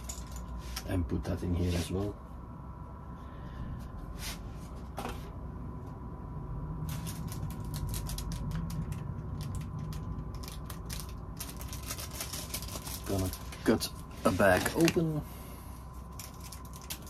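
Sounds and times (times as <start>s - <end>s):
low steady hum: 0.0s - 17.0s
plastic bag crinkling: 6.8s - 15.2s, 16.0s - 17.0s.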